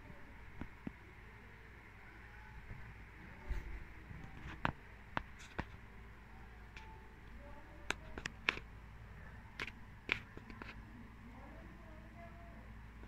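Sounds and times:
kitten paws tapping and clicking: 9.6 - 10.8.

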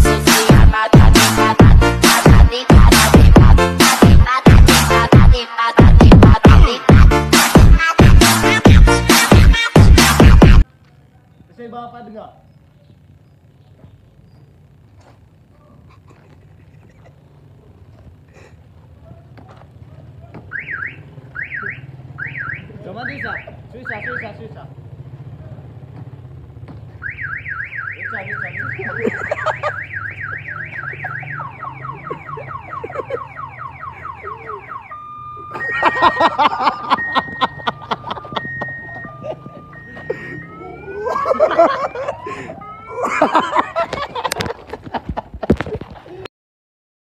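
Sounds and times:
car alarm siren wailing: 20.3 - 24.5, 27.0 - 44.2
people laughing loudly: 28.9 - 29.8, 30.9 - 33.4, 35.4 - 46.1.

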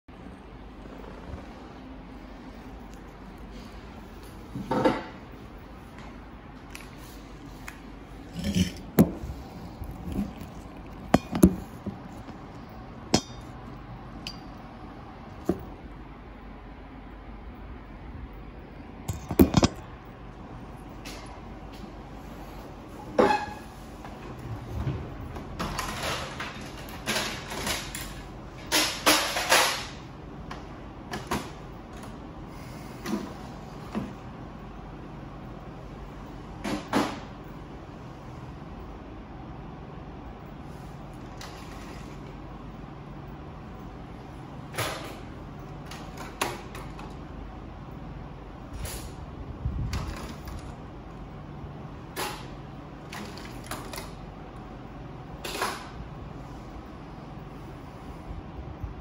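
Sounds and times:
parts and tools clinking: 9.9 - 14.6, 19.1 - 20.1.

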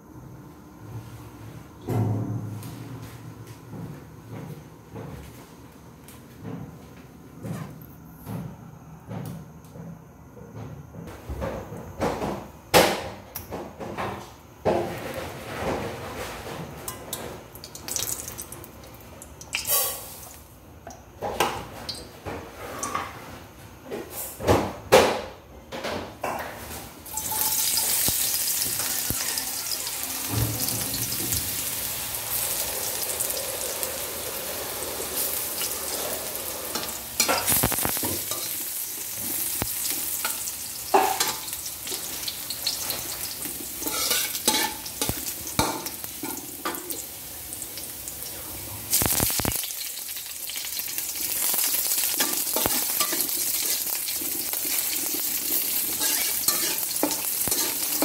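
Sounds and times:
garlic sizzling in oil: 17.5 - 20.5, 27.0 - 58.0
spatula scraping a wok: 35.1 - 45.6, 52.1 - 58.0.

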